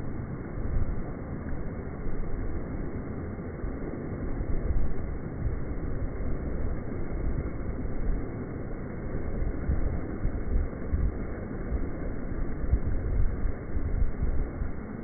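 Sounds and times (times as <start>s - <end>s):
wind buffeting microphone: 3.7s - 15.0s.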